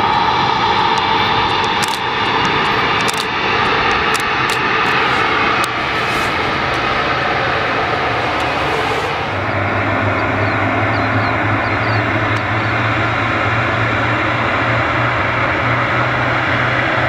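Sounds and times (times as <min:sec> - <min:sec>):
engine whine: 0:00.0 - 0:17.0
jet engines running: 0:00.0 - 0:17.0.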